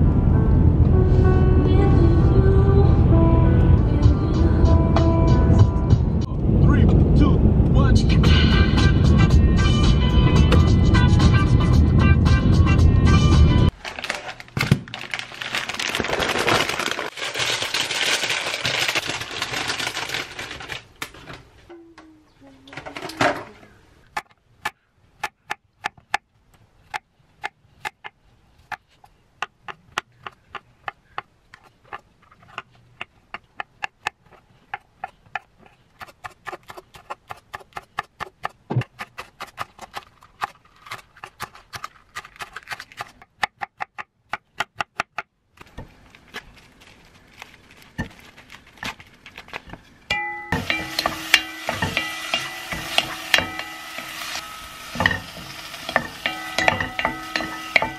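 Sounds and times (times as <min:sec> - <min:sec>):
beef sizzling in pot: 0:50.6 - 0:57.9
wooden spoon stirring: 0:50.6 - 0:57.9.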